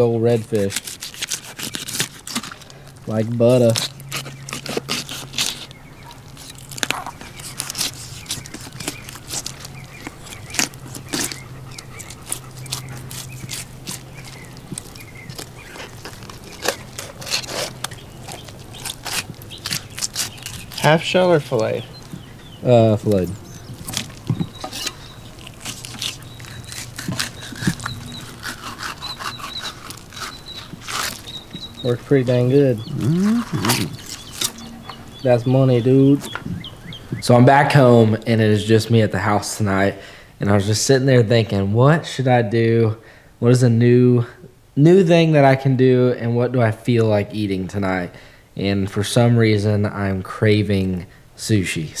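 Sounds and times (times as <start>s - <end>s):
knife cutting through fish scales: 0.0s - 2.7s, 3.5s - 21.4s, 23.8s - 31.8s, 33.2s - 34.7s.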